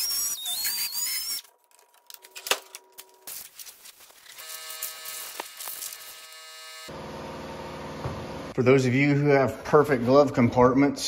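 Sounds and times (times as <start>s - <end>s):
rotary tool grinding plastic: 0.0s - 1.8s.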